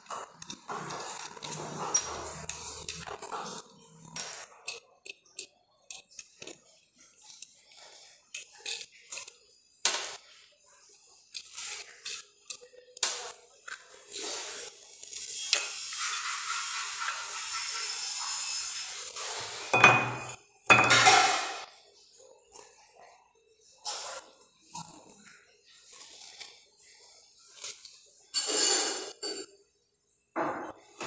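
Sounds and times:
rubbing and scraping: 0.0 - 5.3.

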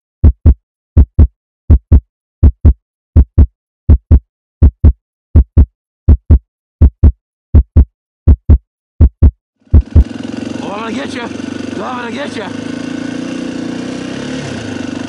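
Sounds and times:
heartbeat thumping: 0.2 - 10.1.

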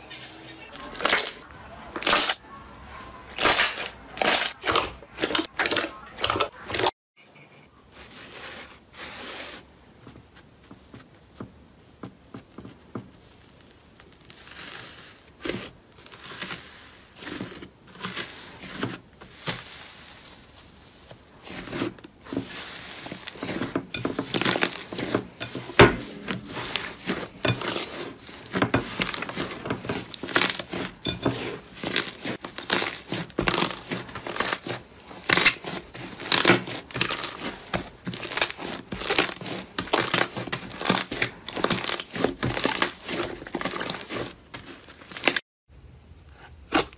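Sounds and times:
slime popping and crackling: 0.9 - 2.4, 24.2 - 45.4.

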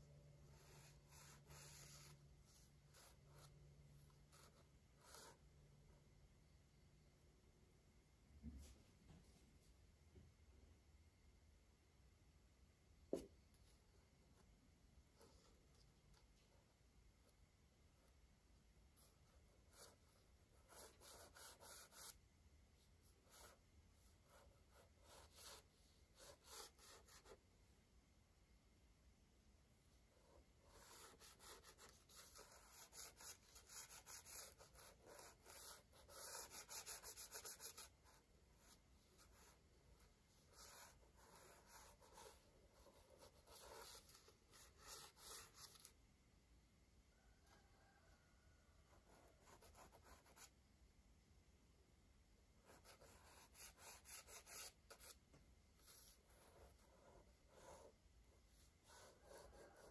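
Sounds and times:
drawing tool scratching paper: 0.4 - 3.5, 19.1 - 22.2, 24.3 - 27.4, 30.1 - 39.6, 40.4 - 45.9, 52.7 - 55.2, 58.8 - 59.9.

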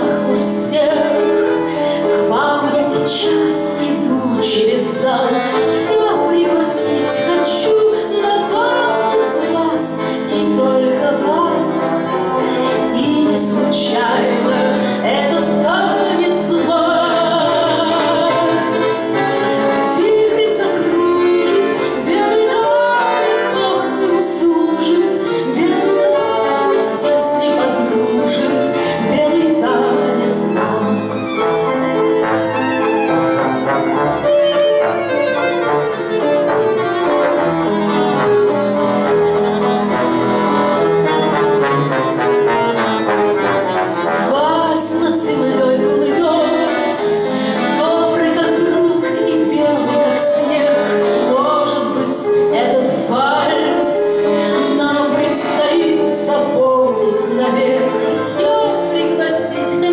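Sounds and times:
woman singing: 0.0 - 31.8, 44.2 - 59.9
accordion: 0.0 - 59.9
piano: 0.0 - 59.9.

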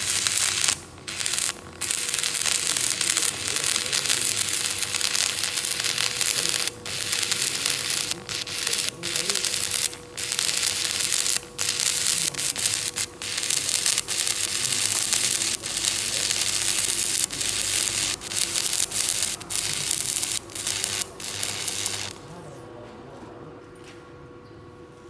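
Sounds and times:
welding arc crackling: 0.0 - 22.3
faint steady hum: 0.0 - 23.6.

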